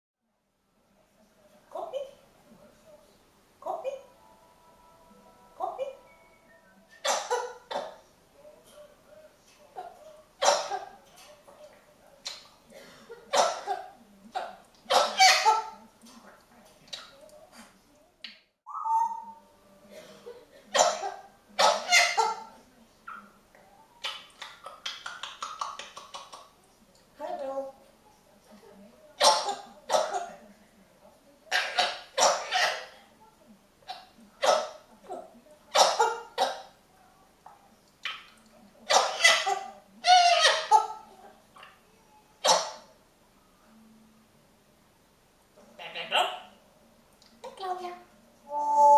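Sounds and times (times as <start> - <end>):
parrot harsh squawks: 7.0 - 8.0, 10.4 - 10.9, 14.4 - 15.8, 18.7 - 19.4, 20.7 - 22.5, 29.2 - 30.3, 31.5 - 33.0, 33.9 - 34.9, 35.7 - 36.7, 38.9 - 41.8, 42.4 - 42.9, 45.8 - 46.6.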